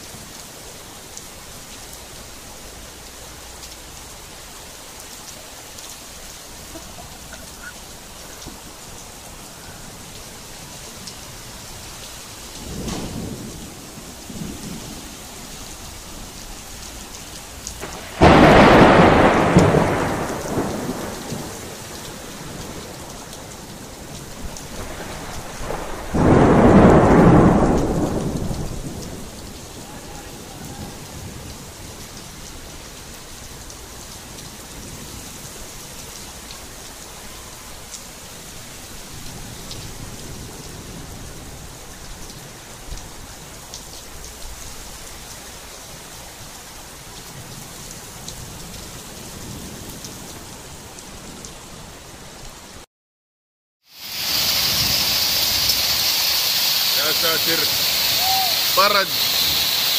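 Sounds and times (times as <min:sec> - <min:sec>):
heavy rain falling: 0:00.0 - 0:52.9, 0:53.8 - 0:59.9
faint thunder rumble: 0:06.6 - 0:36.3
loud thunderclaps: 0:12.6 - 0:15.1, 0:17.8 - 0:23.2, 0:24.0 - 0:31.6.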